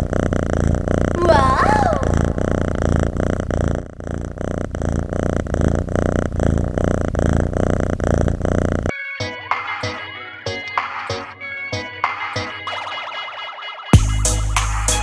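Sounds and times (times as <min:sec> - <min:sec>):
cat purring: 0:00.0 - 0:08.9.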